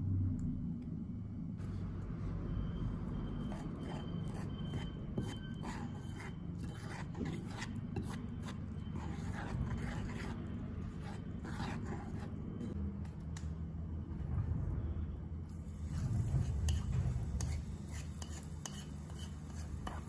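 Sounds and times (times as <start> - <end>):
chopsticks scraping a ceramic bowl: 3.4 - 12.8, 15.9 - 20.0.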